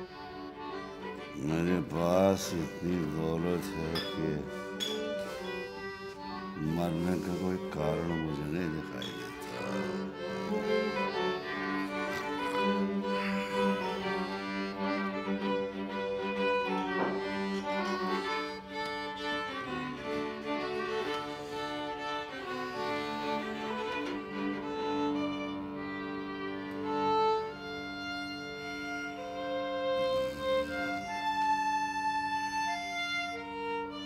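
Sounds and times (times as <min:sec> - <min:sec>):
violin and cello music: 0:00.0 - 0:34.0.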